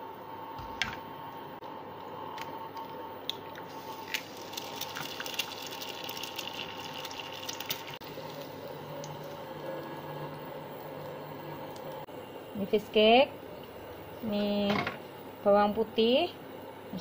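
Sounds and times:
faint steady hum: 0.0s - 17.0s
egg sizzling in oil: 3.6s - 12.1s.

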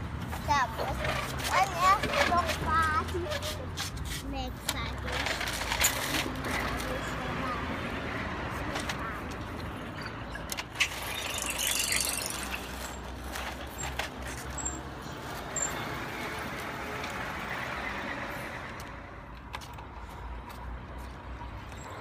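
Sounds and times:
plastic toy trucks clattering: 0.8s - 3.9s, 4.6s - 7.2s, 9.8s - 15.4s.

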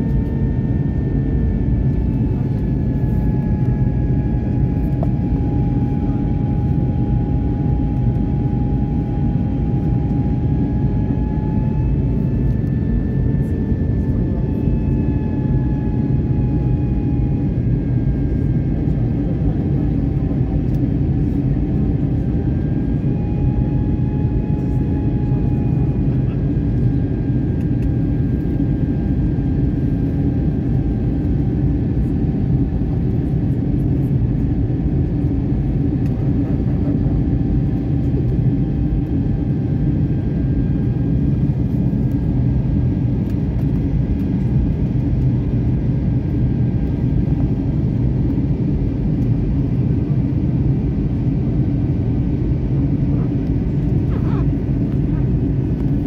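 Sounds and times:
faint high engine whine: 0.0s - 56.0s
jet engine and airflow drone: 0.0s - 56.0s.

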